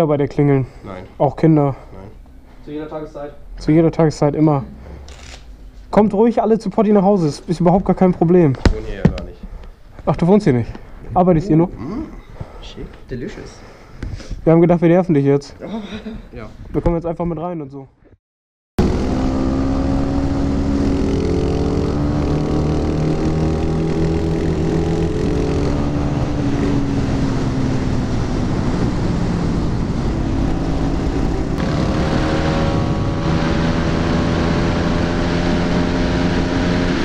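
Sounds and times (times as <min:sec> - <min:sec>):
motorcycle engines cruising: 0:18.8 - 0:37.0
wind rushing over microphone: 0:23.5 - 0:34.9.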